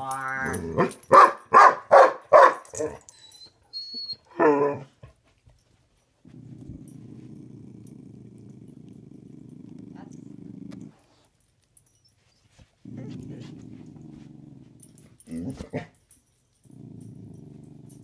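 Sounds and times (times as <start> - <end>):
dog barking: 0.8 - 3.0
dog growling: 6.3 - 11.3, 12.8 - 16.0, 16.6 - 18.0.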